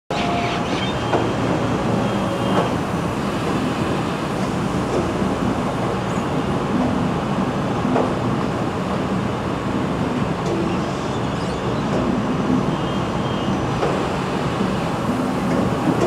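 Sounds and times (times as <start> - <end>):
metallic squeals: 0.1 - 1.4
conveyor machinery din: 0.1 - 16.0.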